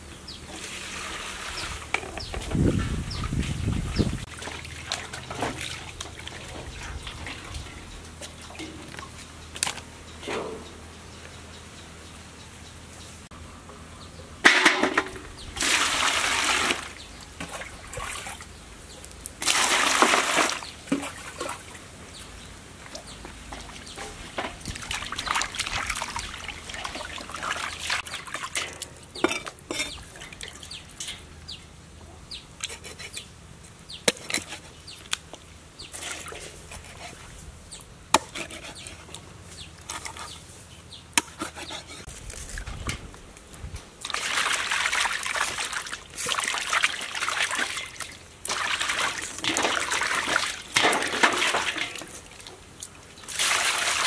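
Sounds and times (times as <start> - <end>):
hands splashing water: 44.0 - 52.5, 53.3 - 54.0
water pouring into basin: 53.3 - 54.0.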